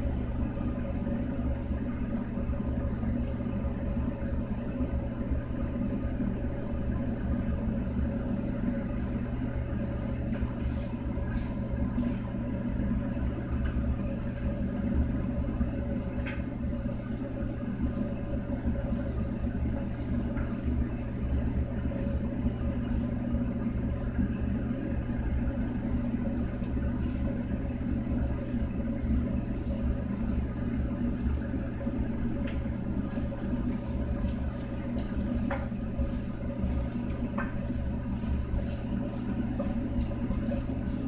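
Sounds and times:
steady low hum: 0.0 - 41.0
wooden spatula scraping a pan: 28.3 - 41.0.

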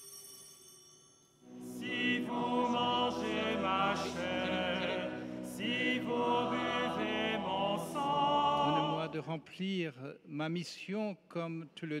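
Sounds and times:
choir singing a hymn: 1.5 - 9.3.

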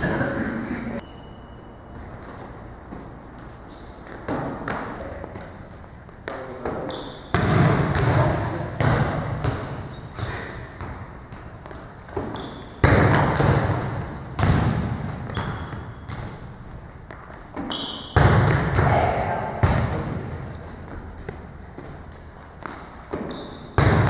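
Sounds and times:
volleyball smacks echoing: 6.6 - 16.5, 17.5 - 20.4, 22.6 - 24.0.

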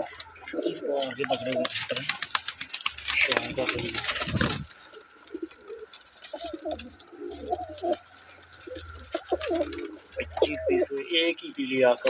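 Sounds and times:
pigeons cooing: 0.0 - 12.0.

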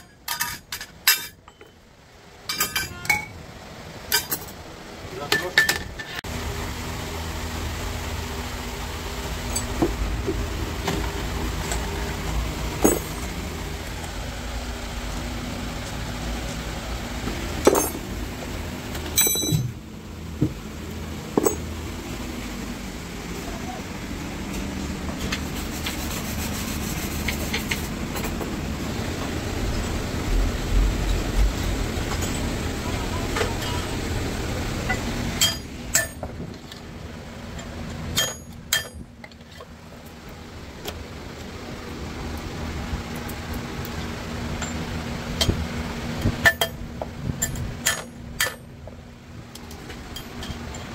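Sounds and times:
metal parts knocking and clinking: 0.0 - 1.8, 2.4 - 3.4, 4.1 - 4.6, 12.8 - 13.4, 17.6 - 18.1, 19.0 - 19.8, 21.3 - 21.7, 47.4 - 48.7
low workshop hum: 0.0 - 50.9
metal clinks: 12.8 - 13.3, 19.1 - 19.8, 21.4 - 21.7.

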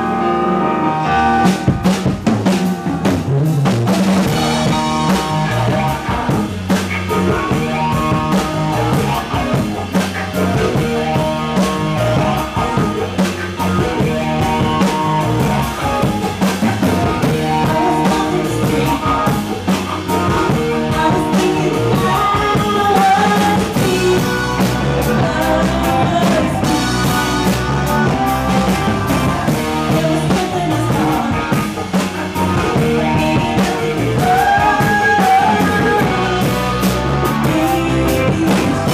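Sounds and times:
live rock band playing: 0.0 - 38.9
woman singing: 17.0 - 27.5, 29.4 - 38.9.

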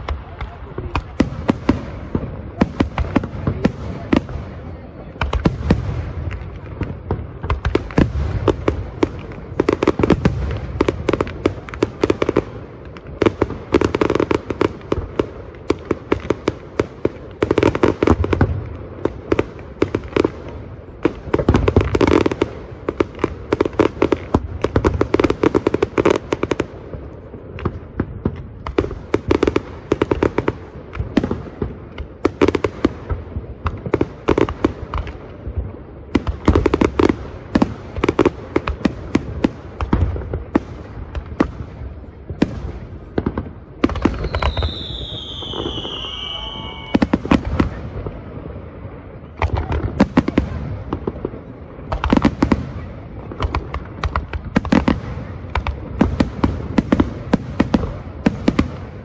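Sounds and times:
fireworks bangs and crackles: 0.0 - 59.0
falling firework whistle: 44.1 - 47.4.

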